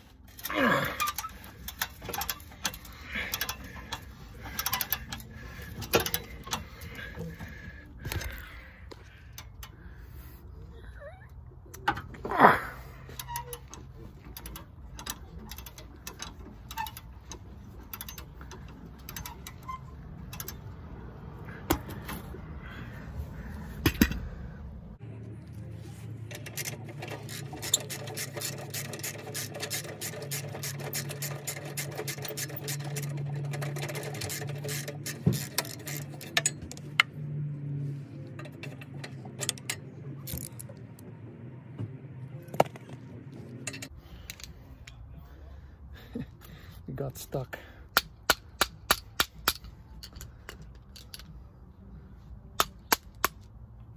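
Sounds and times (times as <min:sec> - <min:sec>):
metallic tool clicks and knocks: 0:47.9 - 0:51.4.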